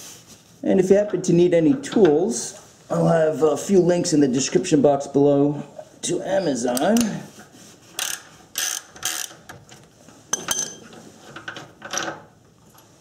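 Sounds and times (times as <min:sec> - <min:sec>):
ratchet wrench clicking: 0:08.0 - 0:09.4.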